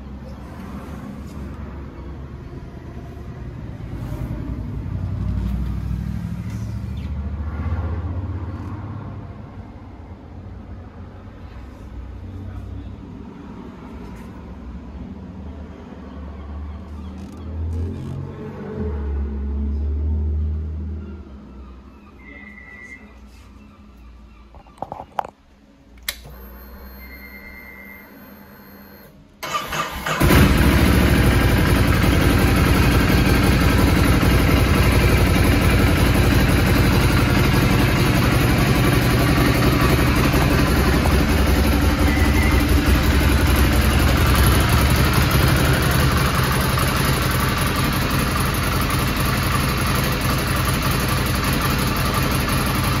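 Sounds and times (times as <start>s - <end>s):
clicks: 24.6s - 26.5s
motorcycle engine idling: 29.4s - 53.0s.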